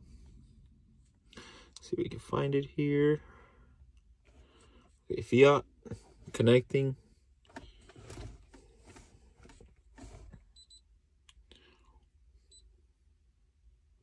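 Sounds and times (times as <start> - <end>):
faint handling noise: 5.9 - 10.5.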